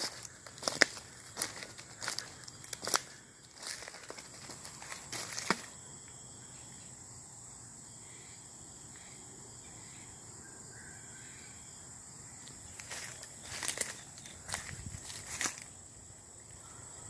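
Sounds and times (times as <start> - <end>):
insects droning: 0.0 - 17.0
faint bird calls: 8.0 - 11.8, 16.4 - 17.0.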